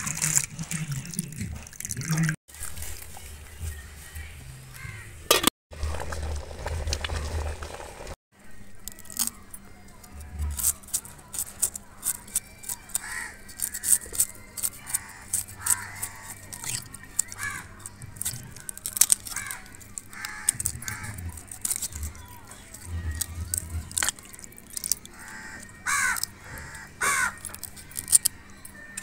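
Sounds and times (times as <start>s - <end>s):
pot boiling over a fire: 2.5s - 8.2s, 10.8s - 26.2s
knife scraping and cutting fish: 10.1s - 29.0s.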